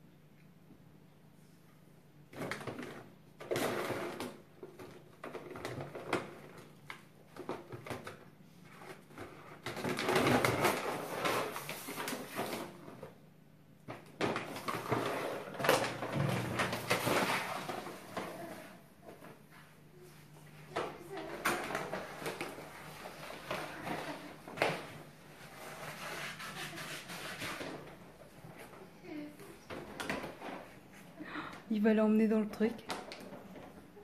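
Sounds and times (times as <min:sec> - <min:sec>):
plastic bag rustling and crinkling: 0:02.4 - 0:13.2, 0:13.9 - 0:34.0
bag dragged across floor: 0:14.6 - 0:18.8, 0:25.2 - 0:28.0.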